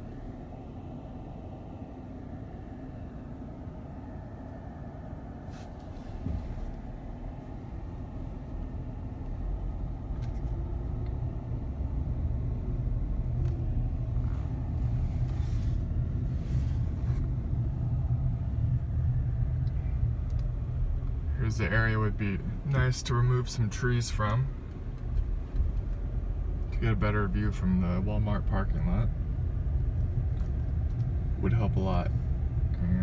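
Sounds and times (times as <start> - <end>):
car engine and tyres rumbling: 0.0 - 33.0.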